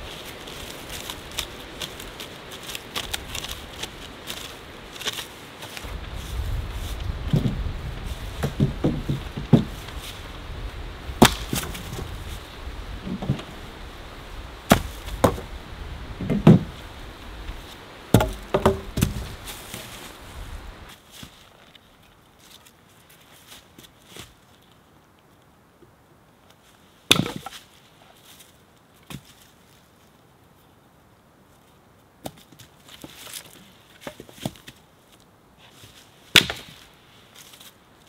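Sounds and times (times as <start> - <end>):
steady hiss: 0.0 - 32.2
axe chopping wood: 11.2 - 12.0, 14.7 - 15.5, 18.1 - 19.4, 27.1 - 27.6, 36.3 - 36.8.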